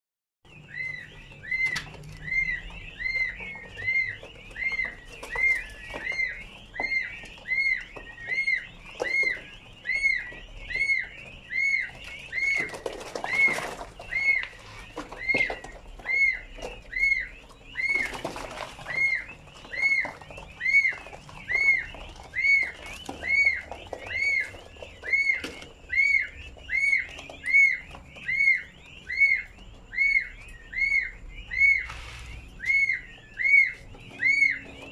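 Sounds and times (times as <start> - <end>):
loud chick peeping: 0.5 - 34.9
soft chick peeps: 0.5 - 34.9
rustling: 31.6 - 34.9.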